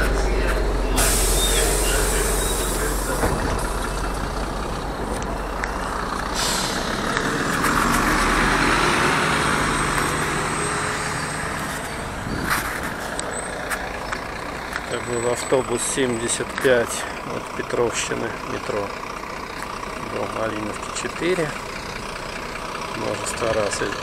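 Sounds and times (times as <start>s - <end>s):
diesel bus engine: 0.0s - 24.0s
compressed air hiss: 1.0s - 3.2s, 6.4s - 7.0s.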